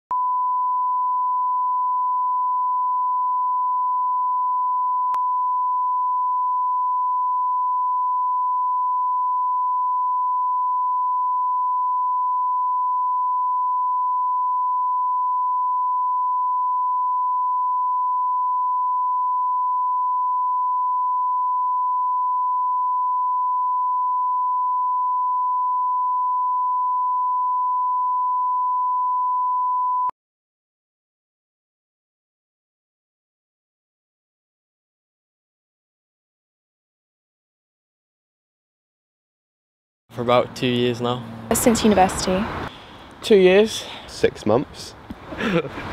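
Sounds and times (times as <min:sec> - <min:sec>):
steady sine-wave tone: 0:00.1 - 0:30.1.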